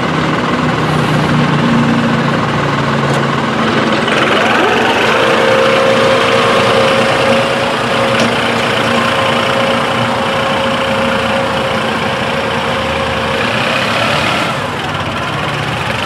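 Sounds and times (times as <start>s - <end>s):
tractor diesel engine running: 0.0s - 16.0s.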